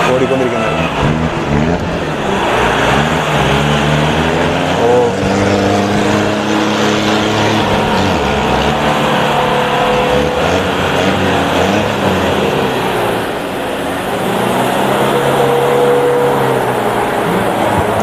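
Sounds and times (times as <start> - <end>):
engines revving: 0.0 - 18.0.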